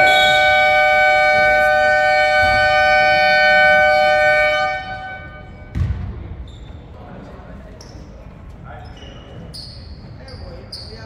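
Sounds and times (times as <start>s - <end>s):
scoreboard horn blast: 0.0s - 5.7s.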